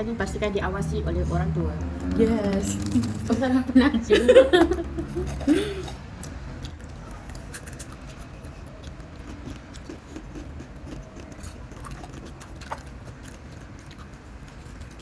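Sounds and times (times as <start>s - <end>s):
chewing crunchy snack noodles: 5.2s - 15.0s.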